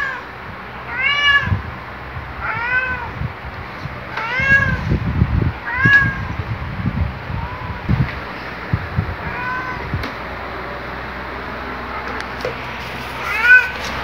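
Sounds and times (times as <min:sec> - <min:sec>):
cat meowing: 0:00.9 - 0:01.6, 0:02.4 - 0:03.2, 0:04.1 - 0:04.9, 0:05.6 - 0:06.4, 0:07.3 - 0:07.9, 0:09.2 - 0:10.0, 0:13.2 - 0:13.9.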